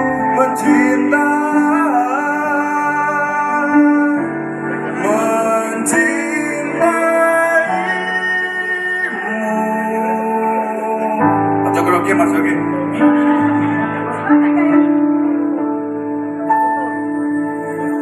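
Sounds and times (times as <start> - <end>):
man singing slow song: 0.0 - 14.0
backing music: 0.0 - 18.0.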